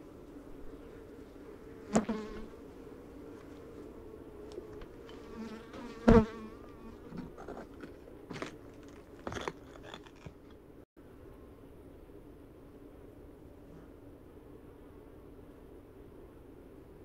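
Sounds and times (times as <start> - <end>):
honeybees buzzing: 0.0 - 9.3.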